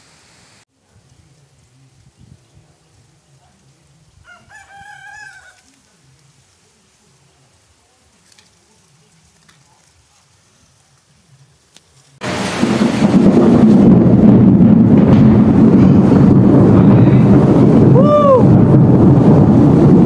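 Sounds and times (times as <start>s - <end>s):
rooster crowing: 4.2s - 5.7s.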